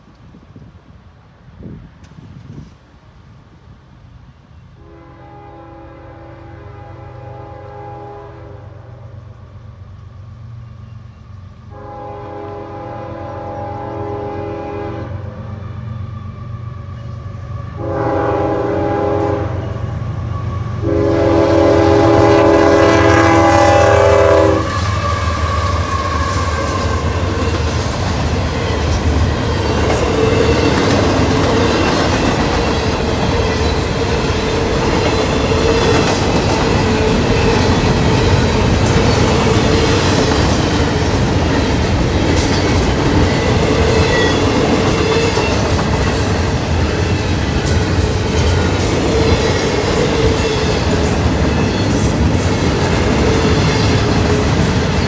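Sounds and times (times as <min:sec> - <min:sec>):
freight train rumbling past: 0:00.0 - 0:55.0
locomotive horn blasts: 0:04.8 - 0:08.9, 0:11.7 - 0:15.4, 0:17.1 - 0:27.0.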